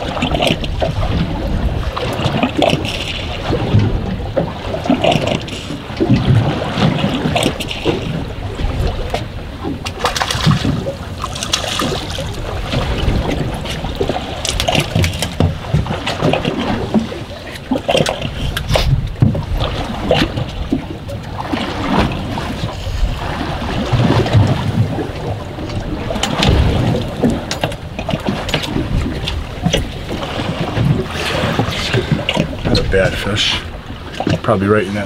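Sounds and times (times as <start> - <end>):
water splashing against boat hull: 0.0 - 35.0.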